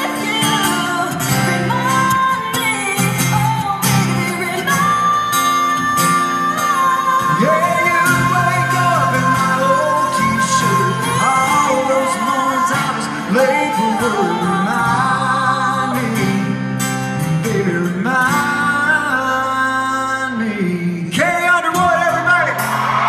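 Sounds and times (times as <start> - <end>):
song sung over a band: 0.0 - 16.7.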